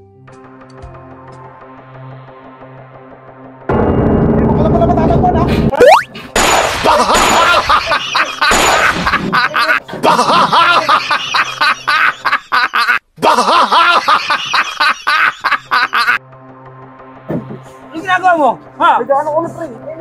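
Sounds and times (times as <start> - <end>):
rapid electronic gunfire: 6.4 - 7.7, 8.5 - 9.2.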